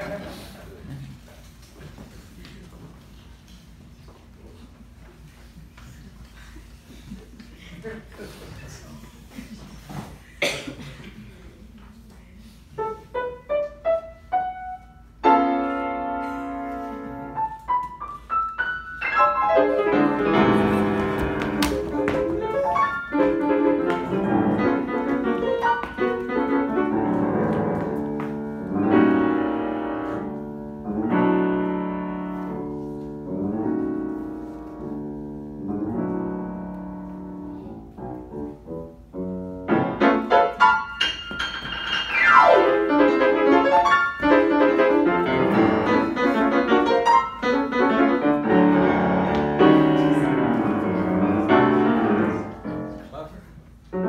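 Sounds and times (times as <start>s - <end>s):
solo grand piano: 12.8s - 53.2s.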